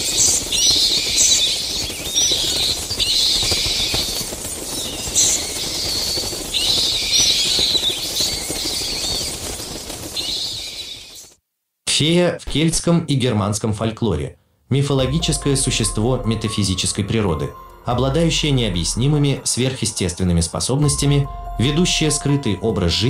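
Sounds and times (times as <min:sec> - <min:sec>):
bat wings fluttering: 0:00.0 - 0:11.4.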